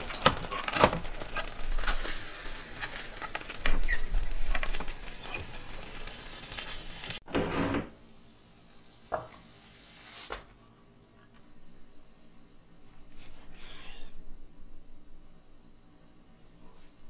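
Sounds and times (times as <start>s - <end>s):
egg sizzling in a pan: 0.2s - 7.2s.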